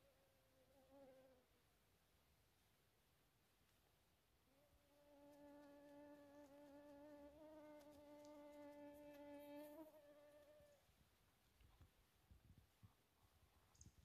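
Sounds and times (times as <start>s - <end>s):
flying insect buzzing: 4.5s - 10.8s.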